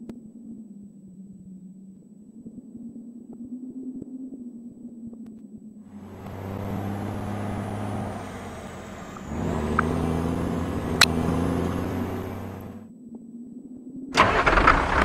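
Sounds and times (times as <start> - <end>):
vehicle engine driving off: 5.9 - 12.9, 14.2 - 15.0.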